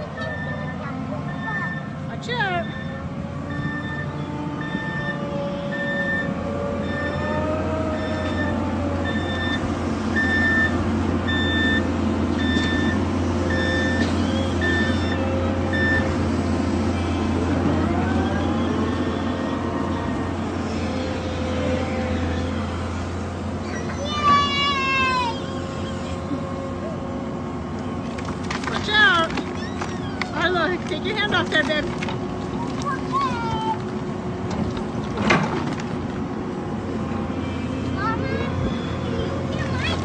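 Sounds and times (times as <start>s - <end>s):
hydraulic whine: 0.0s - 28.3s
diesel engine running: 0.0s - 40.0s
warning alarm beeps: 0.2s - 16.1s.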